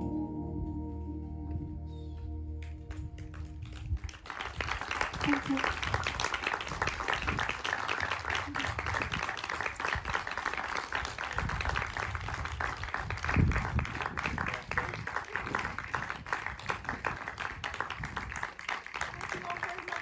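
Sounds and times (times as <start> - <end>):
audience applauding: 2.6 - 20.0.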